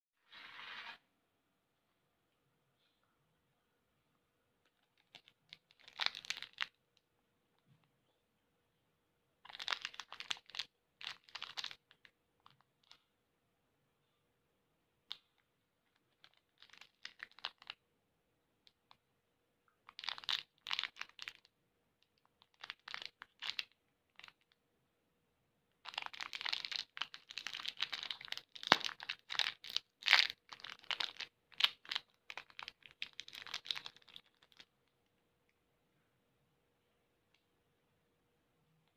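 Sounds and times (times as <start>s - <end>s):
plastic wrapper crinkling and tearing: 4.7s - 6.8s, 9.4s - 13.0s, 15.9s - 17.8s, 19.9s - 21.5s, 22.1s - 24.6s, 25.8s - 34.7s.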